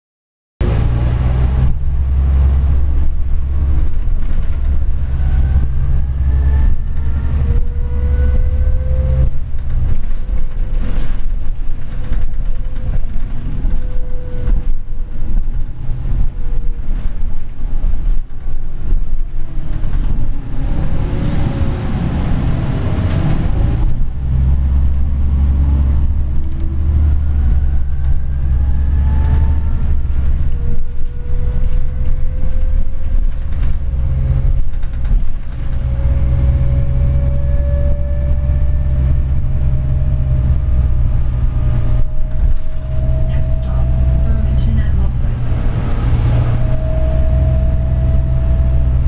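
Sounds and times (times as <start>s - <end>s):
bus engine low drone: 0.6s - 49.0s
rising electric drive whine: 35.8s - 49.0s.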